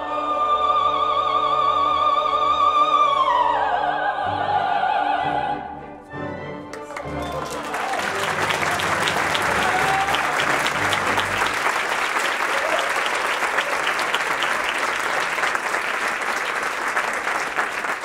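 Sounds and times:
audience applauding: 0:06.7 - 0:18.0.

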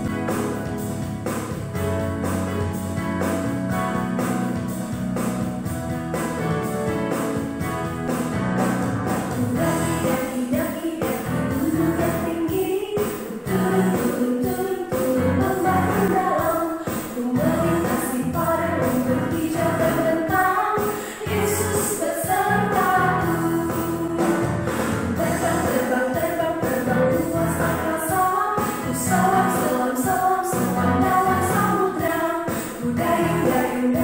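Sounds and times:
upbeat children's song: 0:00.0 - 0:34.0
group of voices singing: 0:09.1 - 0:34.0.

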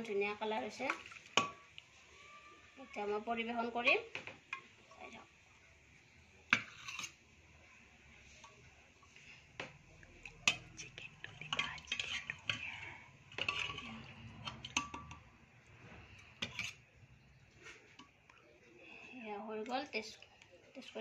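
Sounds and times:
ladle clinking against steel bowl: 0:13.3 - 0:15.2.

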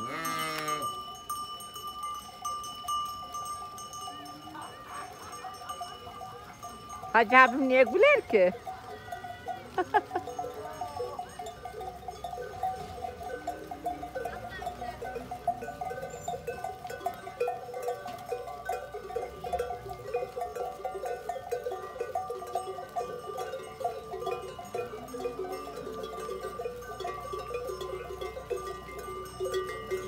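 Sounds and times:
sheep bells clanking and jingling: 0:00.0 - 0:30.0.

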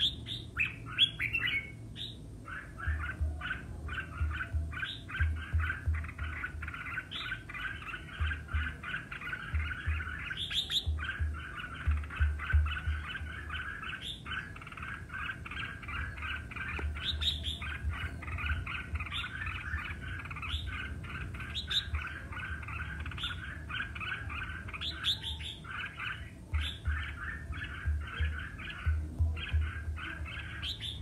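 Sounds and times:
bird chirping song: 0:00.0 - 0:31.0.

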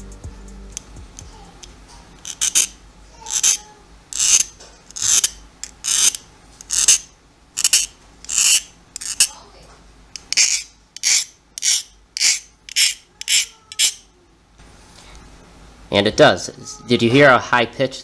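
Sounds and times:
file scraping steel blade: 0:02.3 - 0:09.4, 0:10.3 - 0:14.0.

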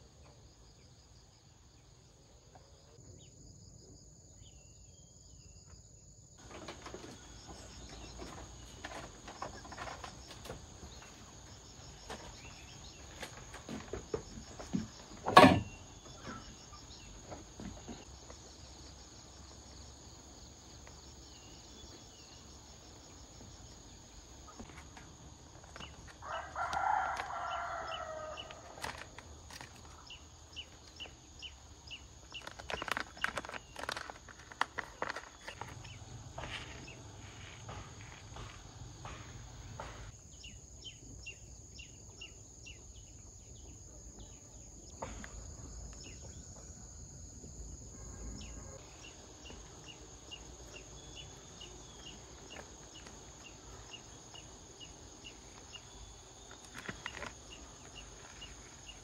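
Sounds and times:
rooster crowing: 0:26.2 - 0:28.9.

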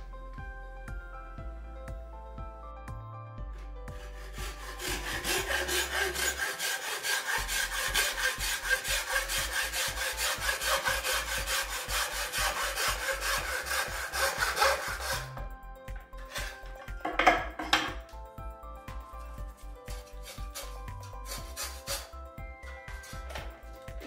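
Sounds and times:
hacksaw rasping through tile: 0:04.0 - 0:15.4, 0:20.0 - 0:22.2.

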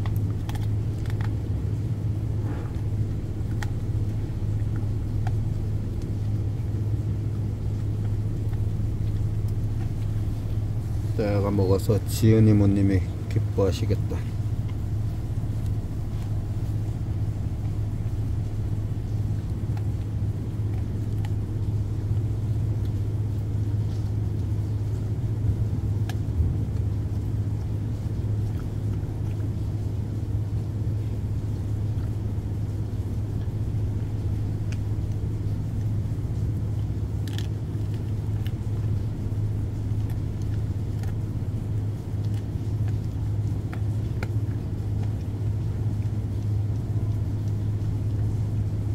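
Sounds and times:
dog chewing food clicks: 0:00.0 - 0:48.9
ship engine drone: 0:00.0 - 0:48.9.

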